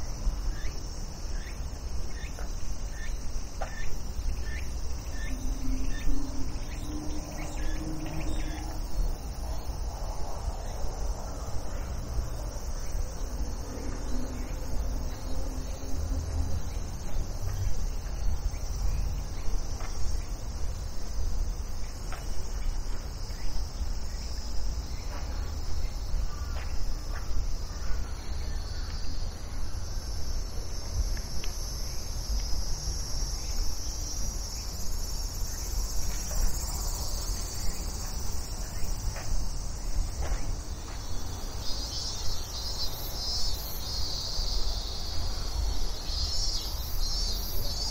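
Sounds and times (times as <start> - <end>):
insects singing in chorus: 0.0 - 47.9
low rumble: 4.8 - 11.3.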